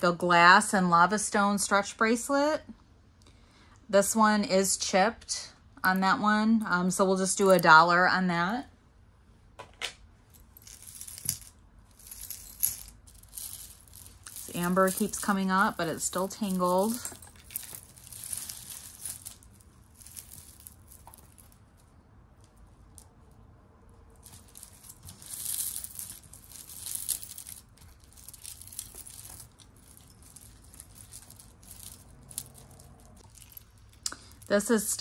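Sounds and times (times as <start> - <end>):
necklace chains clinking: 5.8 - 8.0, 10.3 - 35.0.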